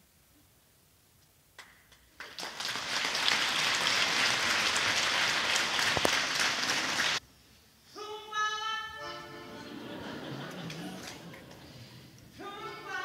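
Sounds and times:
audience applauding: 2.1 - 7.2.

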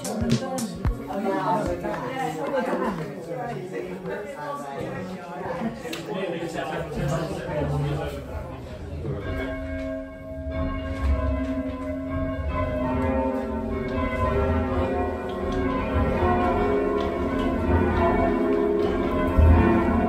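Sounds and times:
church bells ringing: 7.1 - 20.0.

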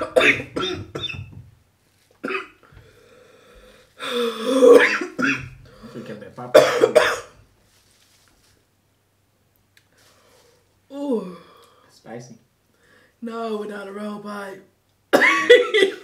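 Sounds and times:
woman coughing hard: 0.0 - 1.3, 2.2 - 2.6, 4.3 - 5.6, 6.5 - 7.4, 15.1 - 16.0.

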